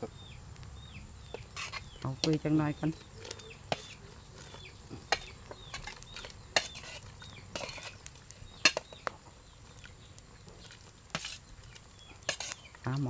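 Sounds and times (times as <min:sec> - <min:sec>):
metal spoon scraping metal tray: 0:01.5 - 0:01.9, 0:05.1 - 0:08.0, 0:12.2 - 0:12.6.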